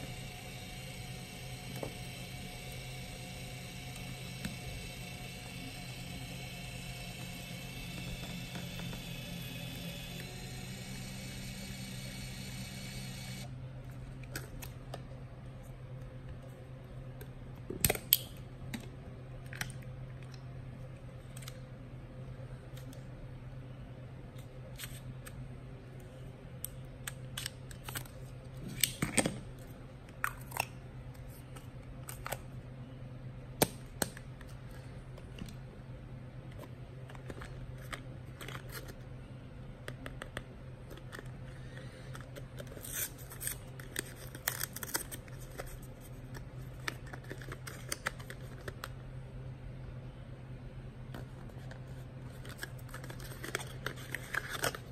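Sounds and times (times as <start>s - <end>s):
steady low hum: 0.0s - 54.9s.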